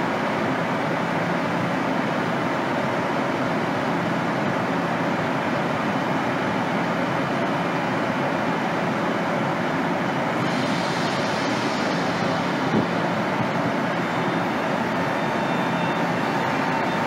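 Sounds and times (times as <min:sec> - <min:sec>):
stationary train hum and hiss: 0:00.0 - 0:17.0
faint steady tones: 0:11.0 - 0:17.0.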